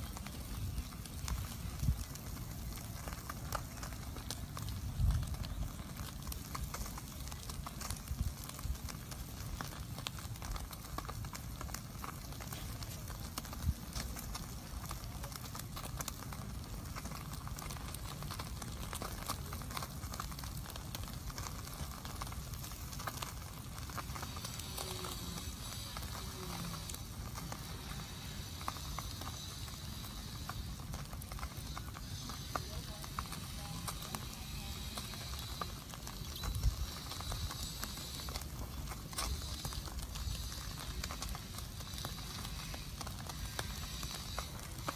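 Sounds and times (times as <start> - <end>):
wood fire crackling and popping: 0.0 - 44.9.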